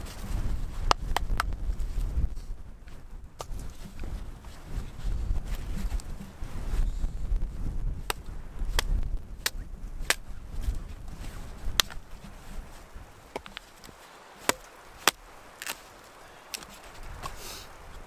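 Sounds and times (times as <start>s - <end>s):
hatchet chopping a branch: 8.0s - 10.2s, 11.7s - 12.0s, 13.3s - 13.7s, 14.4s - 15.8s.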